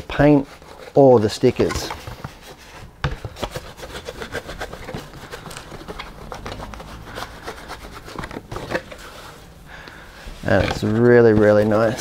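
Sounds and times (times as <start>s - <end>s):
cloth rag rubbing plastic shell: 0.0s - 9.5s, 10.4s - 12.0s.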